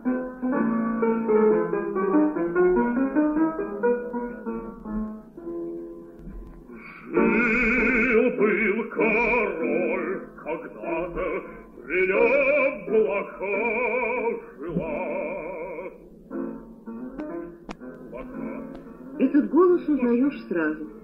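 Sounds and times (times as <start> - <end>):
instrumental accompaniment: 0.0 - 9.6, 11.2 - 21.0
operatic bass singing: 7.1 - 16.1.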